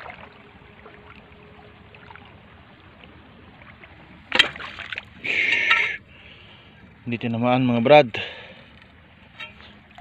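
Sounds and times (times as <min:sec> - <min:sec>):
stream water running: 0:00.0 - 0:10.0
sharp splash in water: 0:04.3 - 0:05.1.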